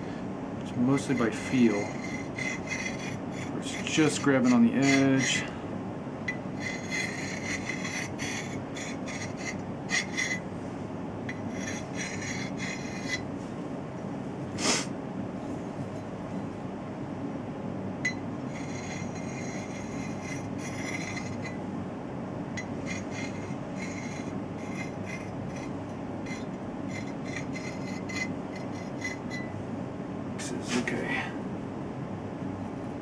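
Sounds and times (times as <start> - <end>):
file scraping steel axe edge: 0.9 - 5.5, 6.6 - 10.4, 11.3 - 13.2, 18.5 - 21.6, 22.6 - 29.5.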